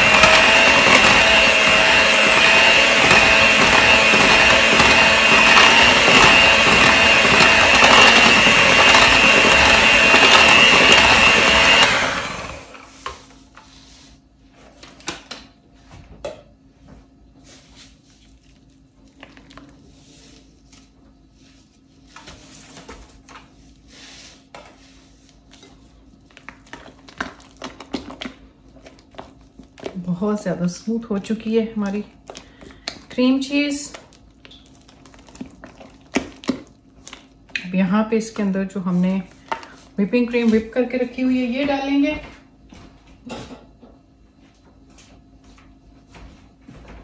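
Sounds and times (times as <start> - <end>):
electric mixer whining: 0.0 - 13.0, 31.2 - 37.2.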